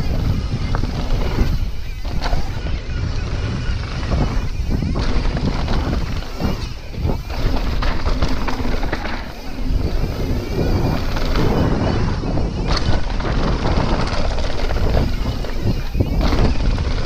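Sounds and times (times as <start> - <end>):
bike knocks and rattles: 0.0 - 17.0
bike tyres rumbling on dirt: 0.0 - 17.0
wind rushing over microphone: 0.0 - 17.0.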